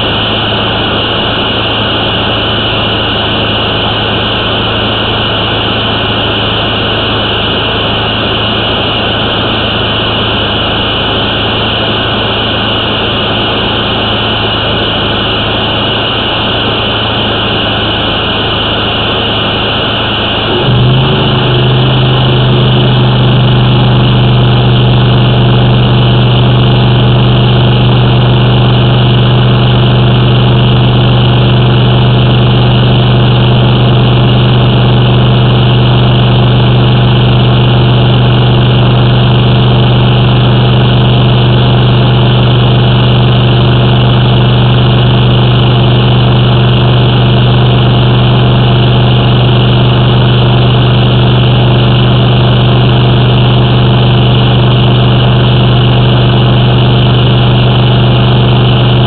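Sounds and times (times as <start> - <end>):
engine humming: 0.0 - 42.0.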